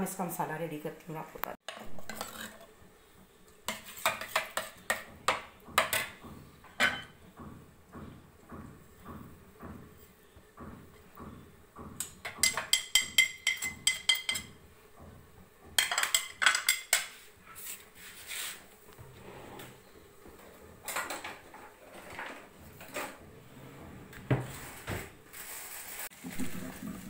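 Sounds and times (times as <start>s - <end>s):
ceramic plate tapping a bowl: 12.3s - 14.6s.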